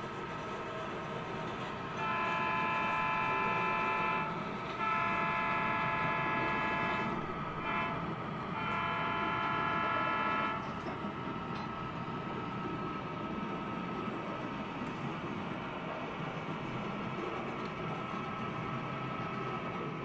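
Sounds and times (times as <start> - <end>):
model locomotive running: 0.0 - 20.0
model train air horn blasts: 2.0 - 10.8.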